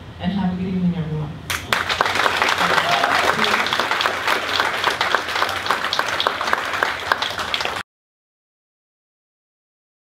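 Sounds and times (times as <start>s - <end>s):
audience applauding: 1.5s - 7.8s.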